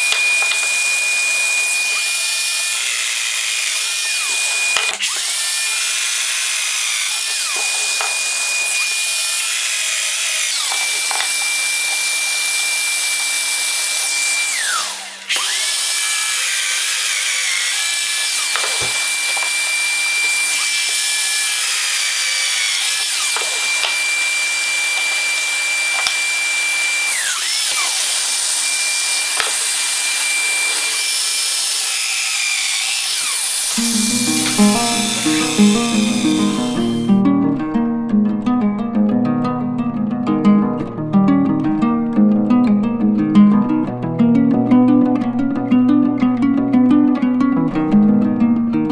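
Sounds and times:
power tool motor whining: 0.0 - 37.1.

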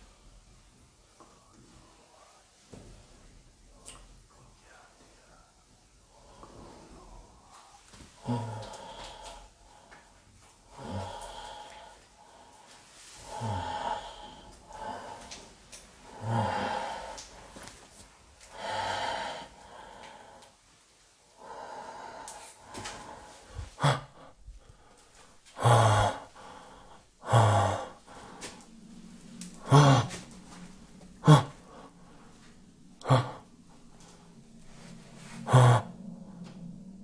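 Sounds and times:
faint steady hum: 0.0 - 37.0
person breathing loudly: 6.1 - 17.8, 18.4 - 20.6, 21.3 - 37.0.

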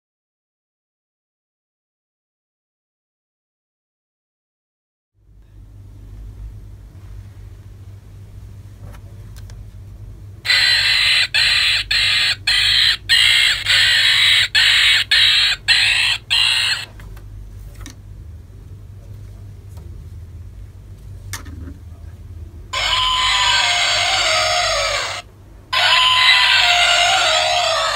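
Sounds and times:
low steady hum: 5.2 - 27.9
toy monkey calls from speaker: 10.5 - 17.0, 22.8 - 27.9.

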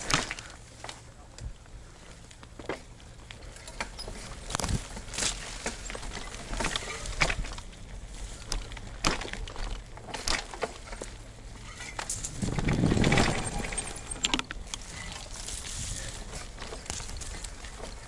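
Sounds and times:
mountain bike rattling on dirt trail: 0.0 - 18.0.

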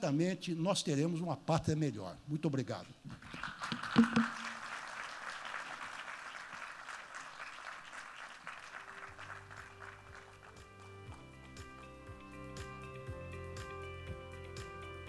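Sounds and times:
audience applauding: 3.2 - 11.1
background music sustained notes: 8.7 - 15.0.

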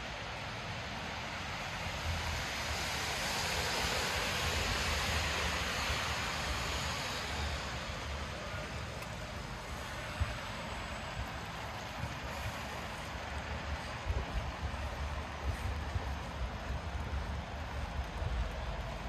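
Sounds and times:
low traffic rumble: 0.0 - 19.0
tyres hissing on wet road: 0.0 - 19.0.

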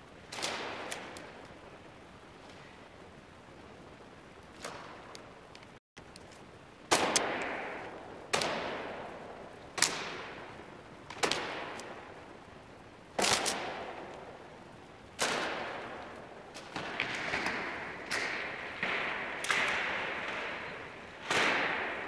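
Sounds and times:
whip cracking in a hall: 0.3 - 1.5, 4.5 - 5.2, 6.9 - 12.2, 13.2 - 14.4, 15.1 - 22.0.

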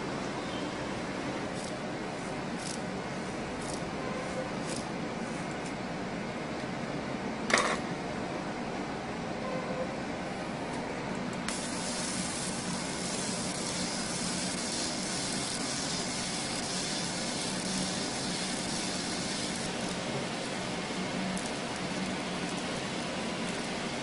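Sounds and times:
low machine hum: 0.0 - 24.0
laser cutter gas jet hiss: 11.5 - 24.0.

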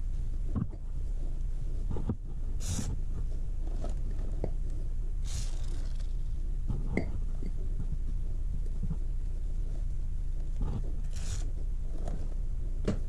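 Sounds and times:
steady low hum: 0.0 - 13.0
rag rubbing a chain: 2.0 - 3.0, 5.2 - 6.3, 10.6 - 12.2.

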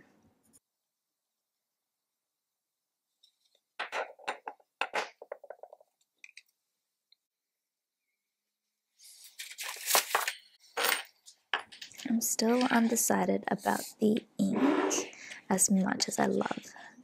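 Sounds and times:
objects tapping on wooden desk: 3.8 - 6.4.

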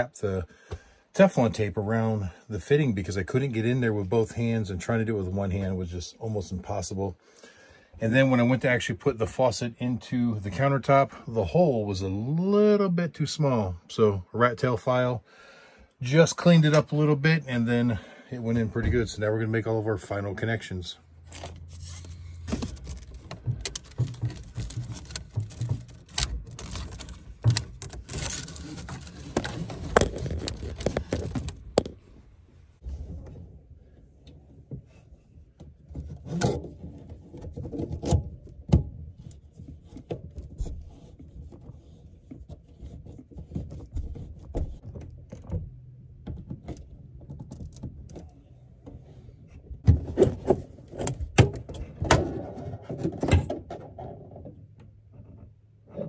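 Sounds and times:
hoses rustling and clicking: 21.2 - 32.2.

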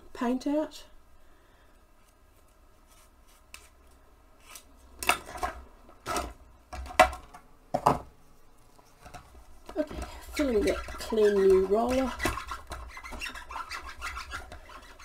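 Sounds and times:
roller scraping and tapping on jar: 9.1 - 15.0.

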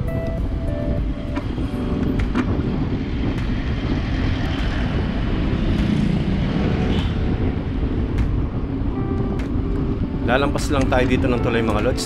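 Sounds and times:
motor traffic passing: 0.0 - 12.0
wind rushing on microphone: 0.0 - 12.0.

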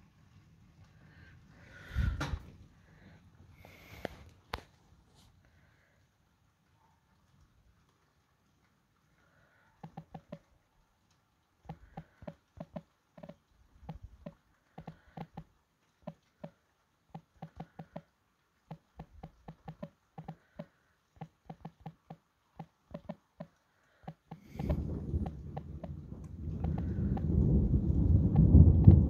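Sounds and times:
faint ringing taps: 9.8 - 10.5, 11.7 - 18.1, 18.7 - 26.0, 26.6 - 27.3.

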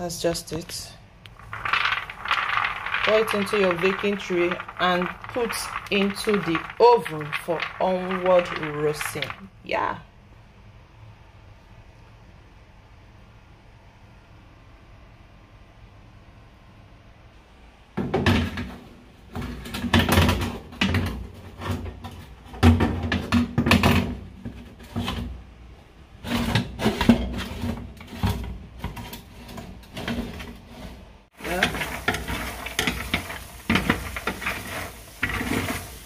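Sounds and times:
peanuts sizzling and crackling: 1.3 - 9.9, 31.3 - 36.0
metal baking tray clattering: 1.4 - 9.5, 31.4 - 36.0.

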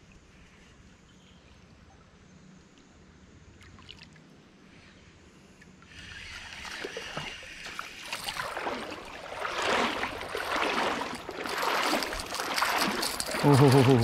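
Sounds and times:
creek water splashing: 5.9 - 14.0.

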